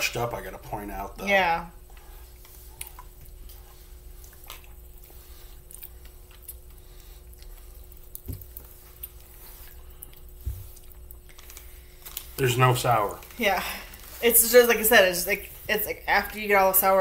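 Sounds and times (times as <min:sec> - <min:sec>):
faint steady hum: 0:00.0 - 0:17.0
popping candy crackling: 0:10.0 - 0:14.0.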